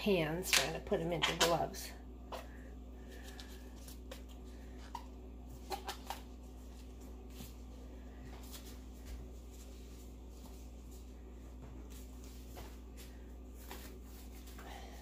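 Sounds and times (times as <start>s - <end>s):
steady low hum: 0.0s - 15.0s
disposable gloves rustling: 2.4s - 15.0s.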